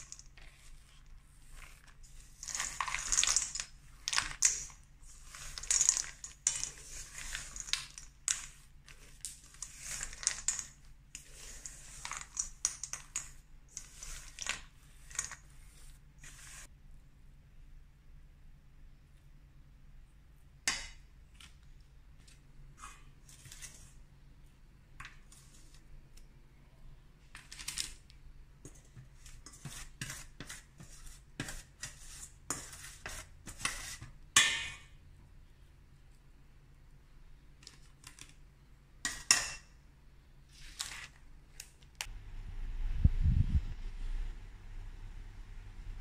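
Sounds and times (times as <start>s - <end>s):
parchment paper rustling: 0.0s - 16.7s, 40.4s - 42.1s.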